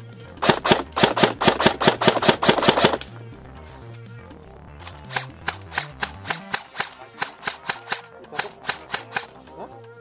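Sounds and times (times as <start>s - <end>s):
airsoft gun rapid shots: 0.4s - 3.1s, 5.0s - 9.3s.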